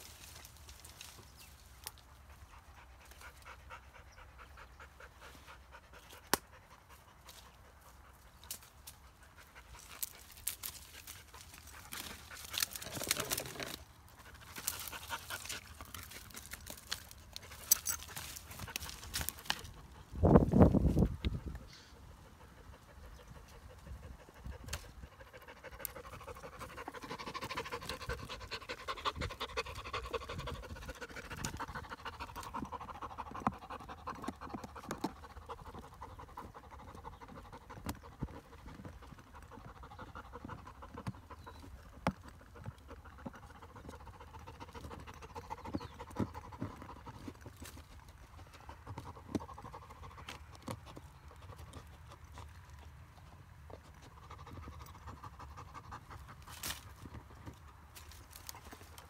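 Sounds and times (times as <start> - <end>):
dog panting hard: 2.3 - 8.2, 21.0 - 52.0, 53.9 - 57.7.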